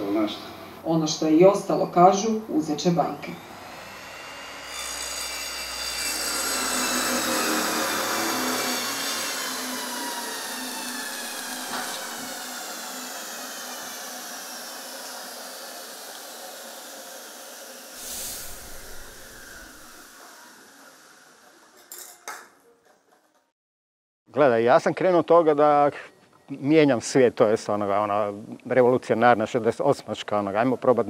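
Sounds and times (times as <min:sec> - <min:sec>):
power tool motor winding down: 0:03.2 - 0:21.9
gas valve hiss: 0:17.9 - 0:21.2.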